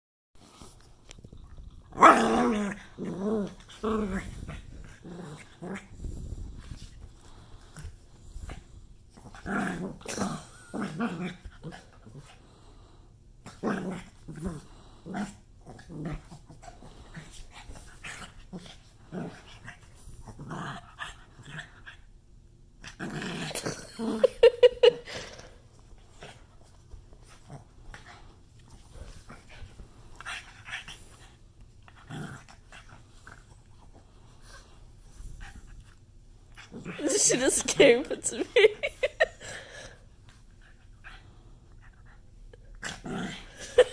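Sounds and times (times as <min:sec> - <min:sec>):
dog growling: 0:01.7 - 0:06.7, 0:13.5 - 0:22.0, 0:22.8 - 0:26.4, 0:36.5 - 0:37.3, 0:42.6 - 0:43.9.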